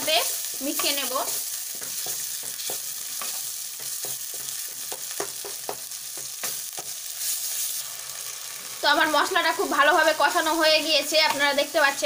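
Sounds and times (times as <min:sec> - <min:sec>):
food sizzling in hot oil: 0:00.0 - 0:12.0
spatula scraping and tapping pan: 0:00.4 - 0:07.6.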